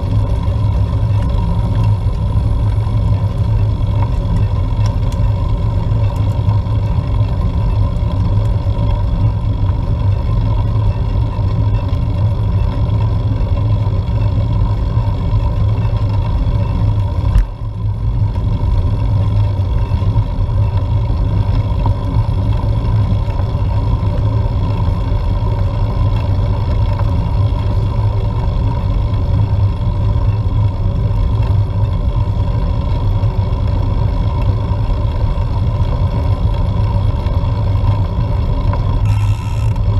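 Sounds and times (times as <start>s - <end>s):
constant hum: 0.0s - 39.9s
wind and road noise rumble: 0.0s - 39.9s.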